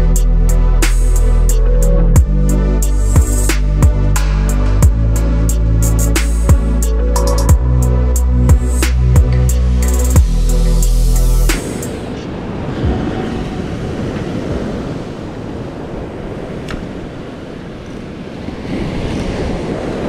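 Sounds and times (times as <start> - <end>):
electronic music: 0.0 - 13.0
wind buffeting microphone: 7.5 - 20.0.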